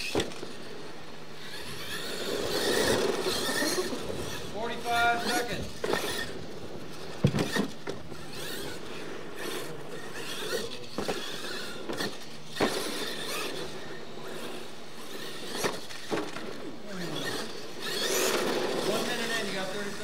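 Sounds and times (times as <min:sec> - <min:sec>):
toy truck banging over ramps: 0:00.0 - 0:00.6, 0:05.2 - 0:06.3, 0:07.1 - 0:08.8, 0:09.4 - 0:16.6, 0:17.2 - 0:19.4
toy truck motor whining: 0:00.0 - 0:20.0.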